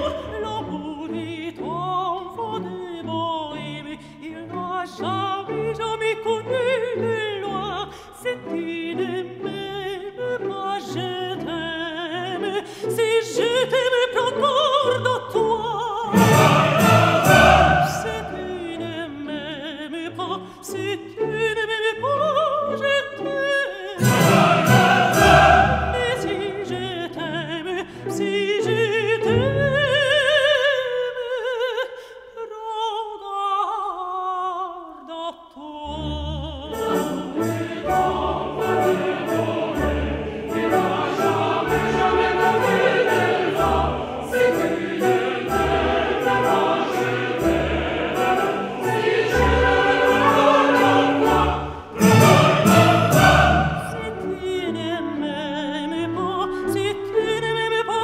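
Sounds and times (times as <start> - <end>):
operatic singing with vibrato: 0.0 - 58.0
orchestra playing: 13.4 - 19.8, 24.0 - 28.4, 36.5 - 57.4.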